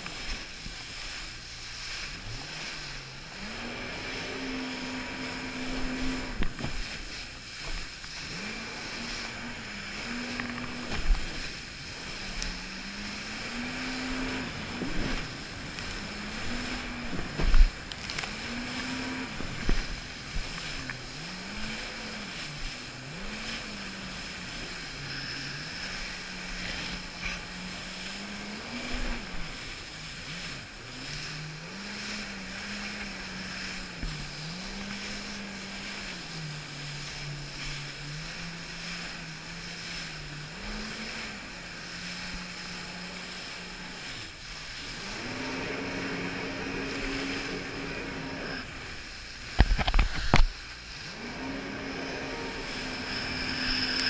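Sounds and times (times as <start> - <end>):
jet ski engine revving: 0.0 - 54.0
spray and wind rushing: 0.0 - 54.0.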